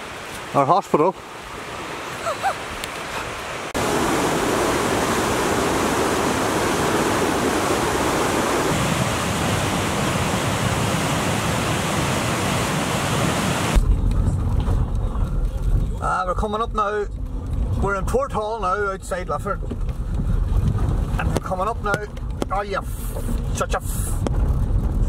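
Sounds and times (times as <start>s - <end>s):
river water rushing: 0.0s - 13.8s.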